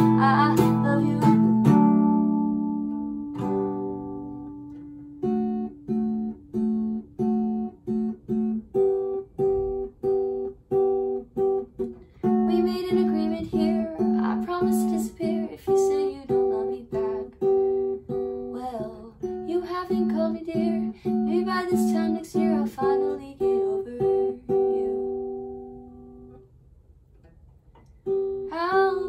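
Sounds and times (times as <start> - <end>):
woman singing: 0.0 - 2.2, 12.4 - 17.6, 18.4 - 25.9, 28.5 - 29.0
fingerpicked acoustic guitar: 0.0 - 29.0.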